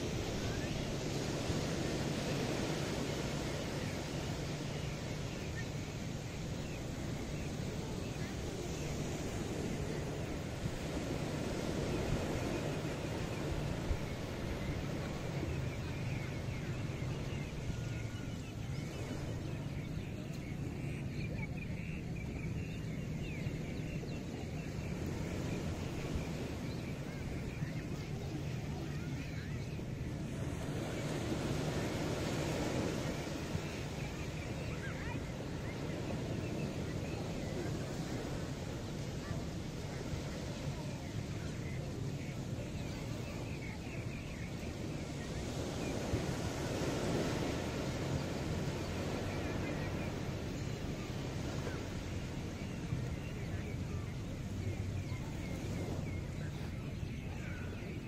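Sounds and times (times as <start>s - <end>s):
ocean surf washing: 0.0s - 58.0s.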